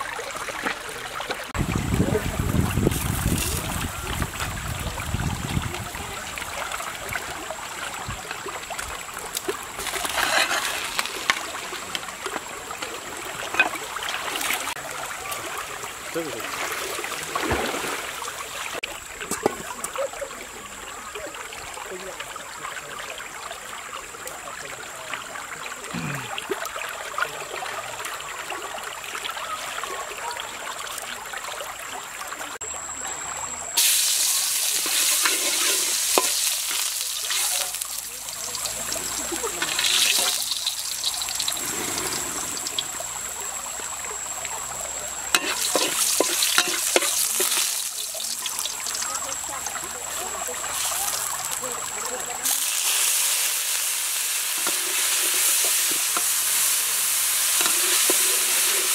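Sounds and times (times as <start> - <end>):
garlic sizzling in hot oil: 8.3 - 14.8, 33.8 - 44.0, 44.8 - 58.9
stirring scrapes in wok: 9.8 - 11.3, 34.6 - 37.0, 45.4 - 47.8, 52.5 - 58.9
stream rushing: 34.3 - 58.9.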